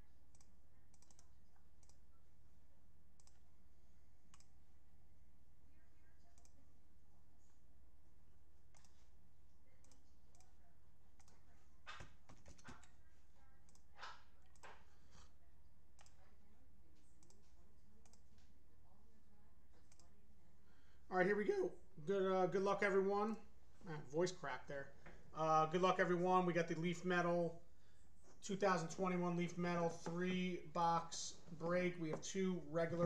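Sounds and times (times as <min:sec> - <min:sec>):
computer mouse clicks: 0:00.3 - 0:02.0, 0:03.2 - 0:03.4, 0:04.3 - 0:04.6, 0:06.4 - 0:06.6, 0:08.7 - 0:09.1, 0:09.8 - 0:10.6, 0:11.2 - 0:13.0, 0:13.6 - 0:14.9, 0:16.0 - 0:16.2, 0:17.0 - 0:18.5, 0:19.8 - 0:20.1.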